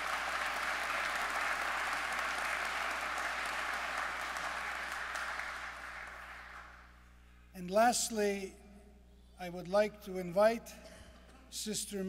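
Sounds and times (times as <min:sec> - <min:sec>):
congregation applauding: 0:00.0 - 0:07.0.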